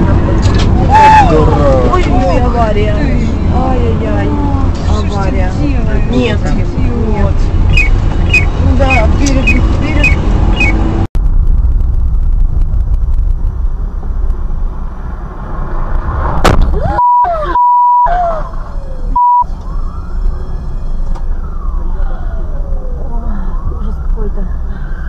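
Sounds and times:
car engine and road rumble: 0.0 - 25.0
steady beep tone: 7.8 - 10.8, 16.9 - 18.1, 19.2 - 19.5
siren wailing: 16.8 - 25.0.

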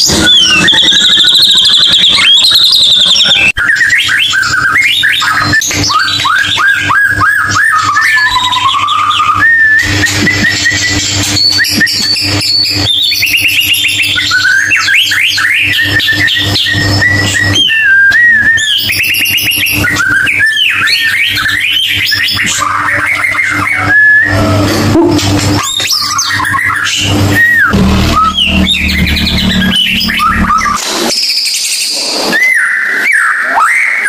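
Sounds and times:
bird singing whistled phrases: 0.0 - 24.6
steady low hum: 26.8 - 31.1.

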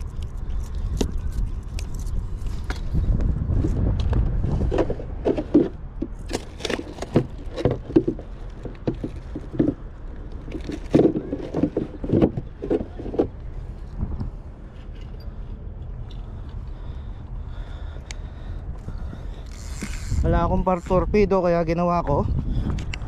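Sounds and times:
low wind rumble: 0.0 - 23.0
camera handling knocks and rustles: 4.0 - 13.3.

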